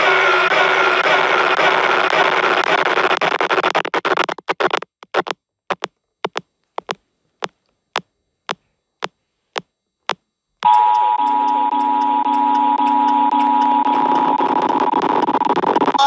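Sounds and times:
short clipped blips: 0:03.1 - 0:07.0
loud pulsing buzzing tones: 0:10.6 - 0:16.0.

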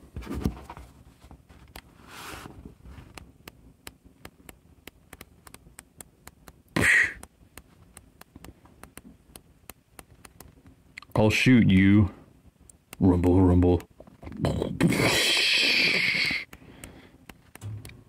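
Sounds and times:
flipbook pages clicking: 0:03.0 - 0:06.6, 0:07.2 - 0:10.7.

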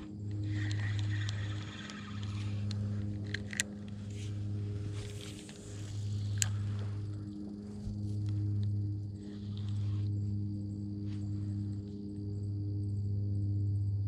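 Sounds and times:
low engine-like hum: 0:00.0 - 0:14.0
sharp clicks: 0:00.3 - 0:04.4
fishing reel winding: 0:00.4 - 0:04.3.

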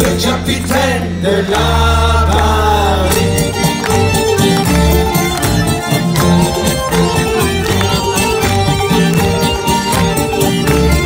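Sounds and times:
accordion: 0:00.0 - 0:11.0
plucked string instrument: 0:02.0 - 0:11.0.

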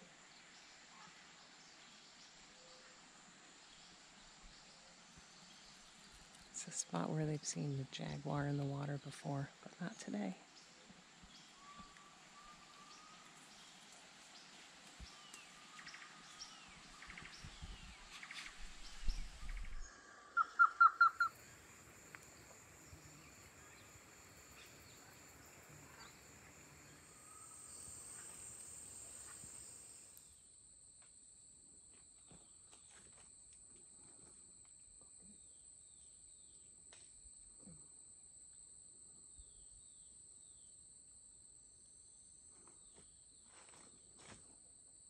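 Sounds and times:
birds calling: 0:19.5 - 0:30.0
high insect drone: 0:20.8 - 0:40.7.

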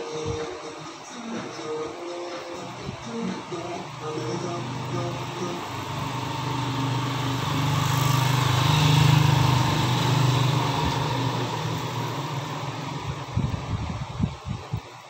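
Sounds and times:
small engine running: 0:02.7 - 0:14.7.

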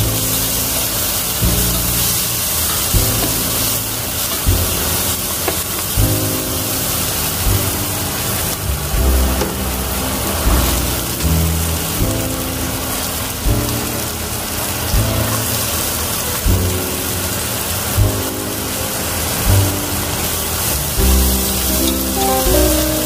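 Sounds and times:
background music with beat: 0:00.0 - 0:23.0
vegetables sizzling in oil: 0:00.0 - 0:23.0.

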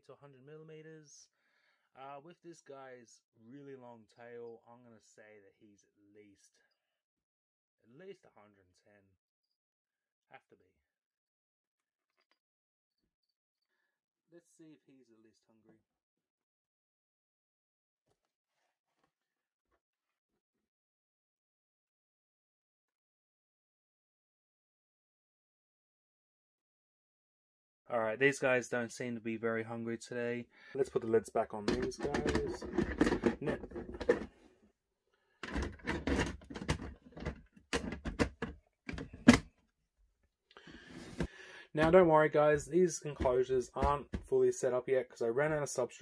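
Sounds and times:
plastic lid knocking and clicking: 0:31.6 - 0:34.3, 0:35.4 - 0:39.4, 0:43.2 - 0:44.3.

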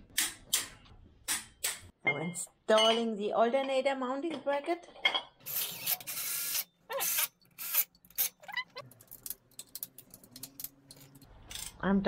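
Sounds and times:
short squeaks: 0:05.7 - 0:08.8.

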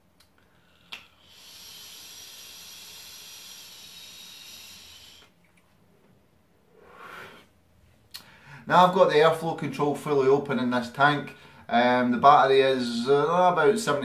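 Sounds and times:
breathy exhale: 0:00.4 - 0:05.4, 0:06.7 - 0:07.6, 0:08.2 - 0:08.7
air hissing through vape: 0:01.1 - 0:05.4.

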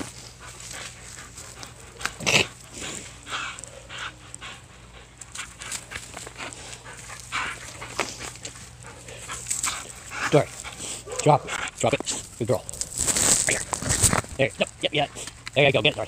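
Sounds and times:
dog chewing a rope: 0:00.0 - 0:16.0.

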